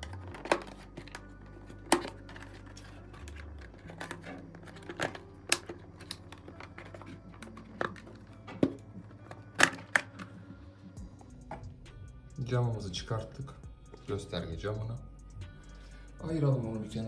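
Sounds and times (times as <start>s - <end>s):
plastic clips clicking and snapping: 1.8s - 10.3s.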